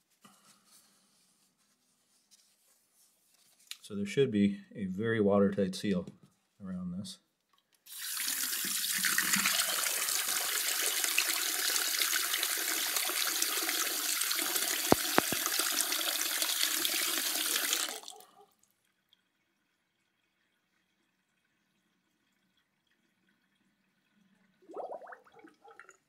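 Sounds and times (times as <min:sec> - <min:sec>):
faucet running into basin: 0:07.9 - 0:18.4, 0:24.6 - 0:26.0
water swirling down drain: 0:20.6 - 0:26.0.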